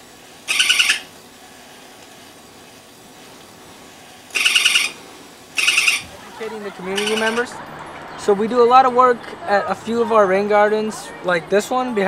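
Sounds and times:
electronic monkey chatter toy: 0.5 - 1.1, 4.3 - 5.0, 5.6 - 8.2.

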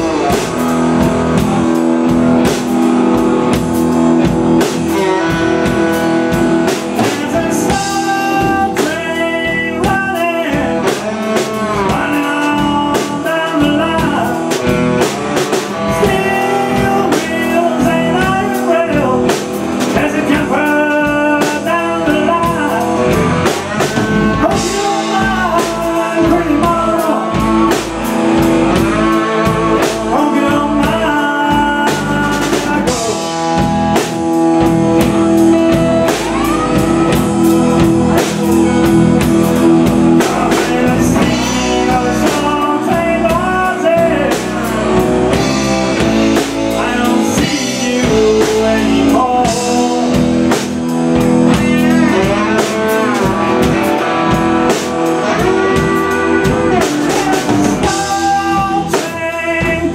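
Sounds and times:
bass guitar: 0.0 - 59.9
drum kit: 0.0 - 59.9
electric guitars: 0.0 - 59.9
man singing lead vocal: 0.0 - 59.9.

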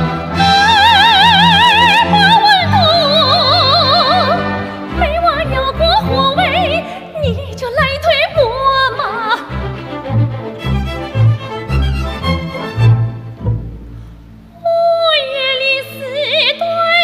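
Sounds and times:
symphony orchestra: 0.0 - 17.0
woman singing with vibrato: 0.2 - 9.6, 14.6 - 17.0.

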